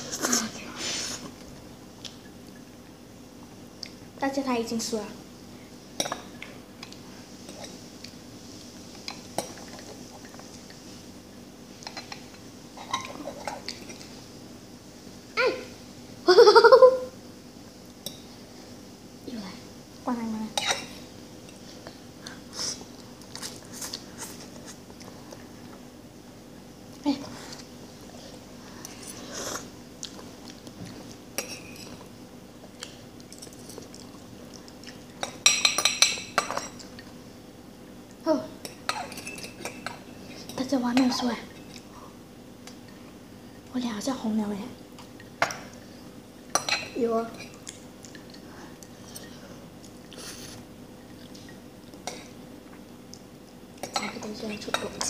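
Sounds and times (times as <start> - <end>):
forks clinking against bowl: 38.6 - 40.6, 46.5 - 47.0.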